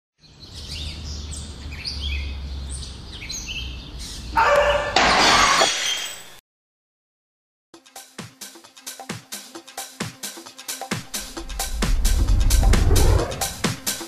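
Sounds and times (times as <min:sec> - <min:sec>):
low rumble: 0:11.0 - 0:14.0.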